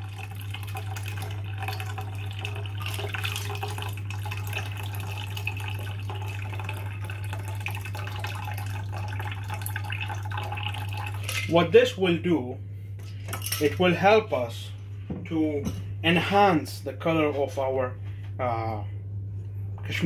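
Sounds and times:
water pouring and splashing: 0:00.0 - 0:11.5
low hum: 0:00.0 - 0:20.0.

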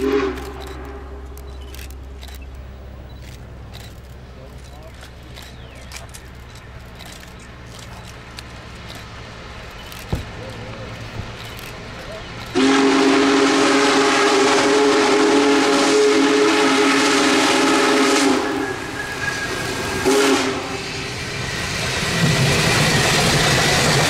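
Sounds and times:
steam locomotive whistle: 0:00.0 - 0:01.2, 0:12.5 - 0:21.2
locomotive low rumble: 0:00.0 - 0:24.0.

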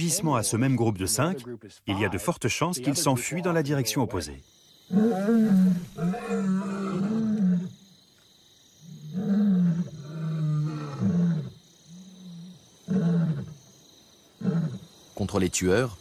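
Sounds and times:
lion roaring: 0:04.9 - 0:07.8, 0:08.9 - 0:13.6.

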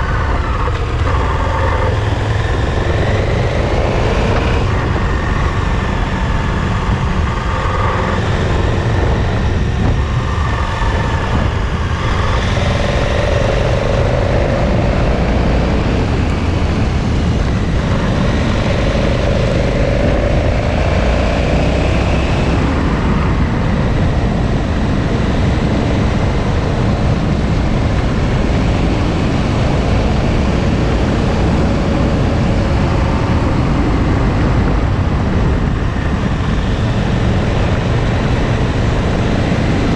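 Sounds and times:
motorcycle engine running: 0:00.0 - 0:39.9
wind rumble on microphone: 0:00.0 - 0:39.9.

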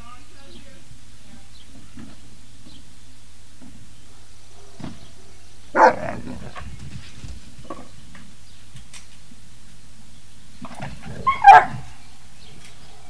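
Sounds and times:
puppy barking: 0:05.8 - 0:06.6, 0:11.1 - 0:11.9.

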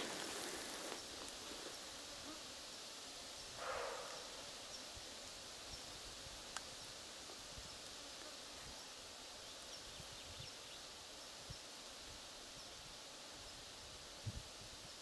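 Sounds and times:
steady high hiss: 0:00.0 - 0:15.0
faint chirps: 0:03.3 - 0:05.0.

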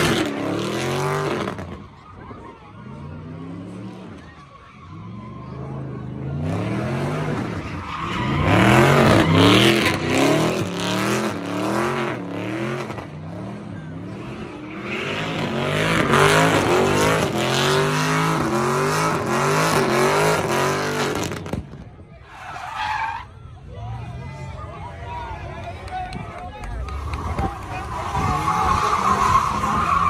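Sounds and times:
car engine revving: 0:00.0 - 0:01.8, 0:05.2 - 0:21.8
tires screeching on pavement: 0:00.0 - 0:30.0.

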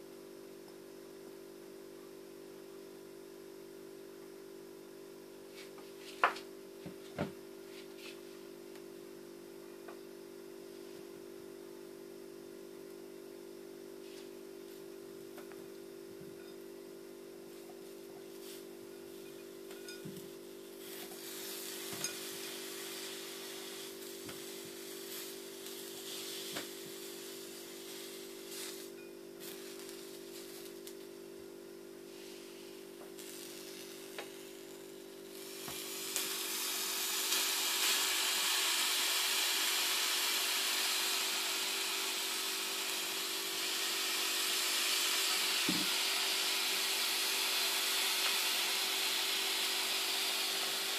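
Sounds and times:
grapes sizzling and steaming: 0:15.8 - 0:50.9.

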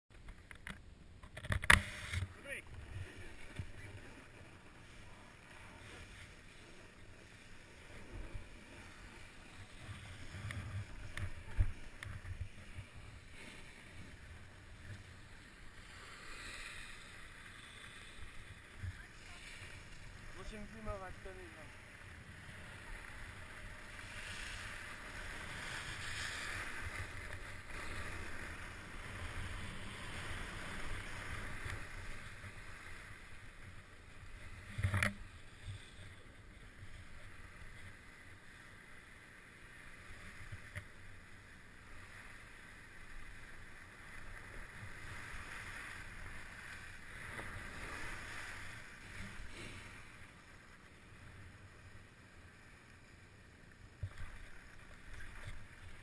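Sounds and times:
ski edges scraping over snow: 0:01.6 - 0:36.0.

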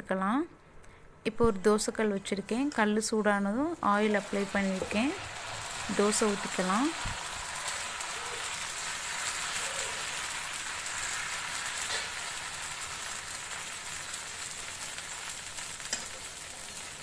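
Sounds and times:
batter sizzling on a griddle: 0:03.8 - 0:17.0.

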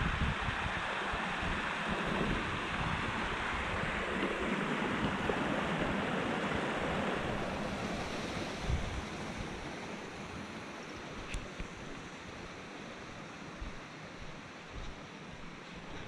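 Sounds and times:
wind on microphone: 0:00.0 - 0:09.7
stream rushing: 0:00.0 - 0:16.0.

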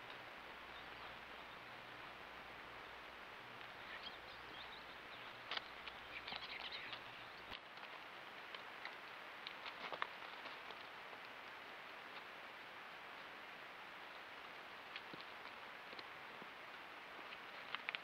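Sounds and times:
faint microphone hiss: 0:00.0 - 0:18.0
faint high bird chirps: 0:03.7 - 0:07.5.

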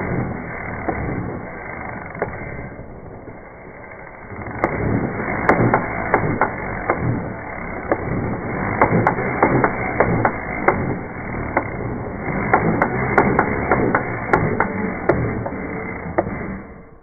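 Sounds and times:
drill driven lapping tool: 0:00.0 - 0:17.0
sharp clicks and knocks: 0:04.4 - 0:16.8.

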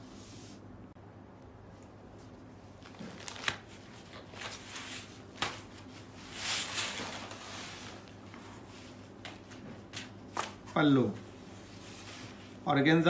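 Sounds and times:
fabric rustling: 0:02.1 - 0:10.4.

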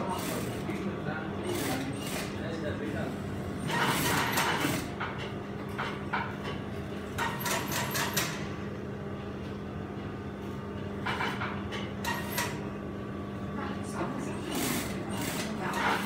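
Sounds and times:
sewing machine motor hum: 0:00.0 - 0:00.8, 0:01.4 - 0:02.5, 0:14.4 - 0:16.0
sewing machine rapid clattering: 0:00.0 - 0:00.8, 0:01.5 - 0:02.4, 0:03.6 - 0:04.9, 0:07.2 - 0:08.4, 0:14.5 - 0:16.0.

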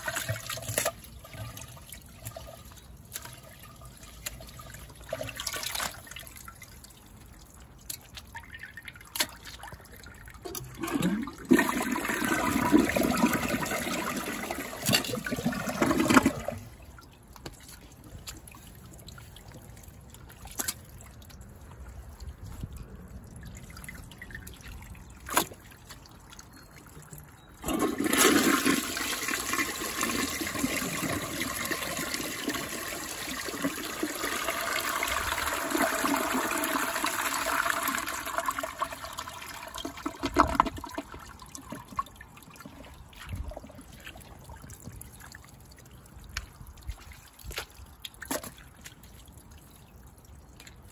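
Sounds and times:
low water trickle: 0:00.0 - 0:50.9
toilet flushing: 0:10.5 - 0:16.6, 0:27.6 - 0:41.9.

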